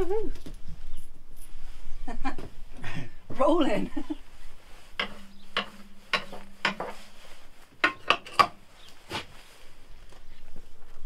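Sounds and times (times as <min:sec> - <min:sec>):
hand scraper scraping metal floor: 0:04.6 - 0:09.5.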